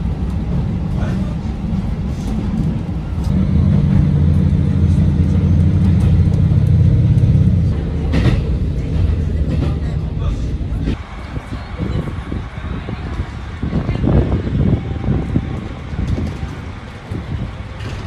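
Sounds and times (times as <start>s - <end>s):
vehicle engine drone: 3.2s - 9.3s.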